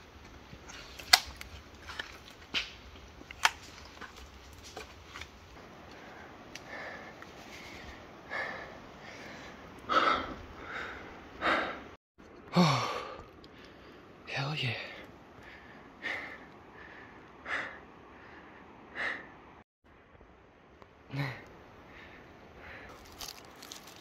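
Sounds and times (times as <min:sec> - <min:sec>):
person breathing hard: 0:05.9 - 0:14.2, 0:14.9 - 0:19.4, 0:21.1 - 0:24.0.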